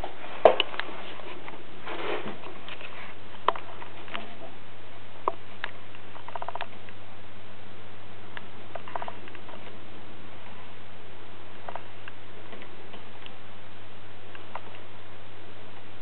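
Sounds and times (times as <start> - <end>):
low hum: 0.0 - 16.0
small clicks and ticks: 5.2 - 7.0, 8.4 - 9.8.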